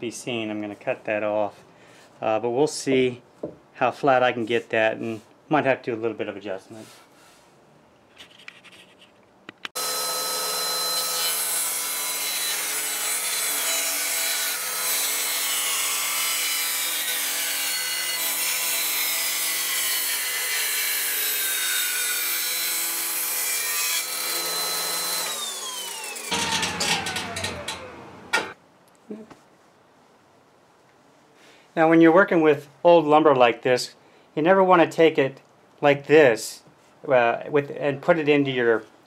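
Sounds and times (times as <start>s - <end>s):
table saw running: 9.8s - 20.1s, 21.0s - 28.6s
motor winding down: 25.2s - 28.5s.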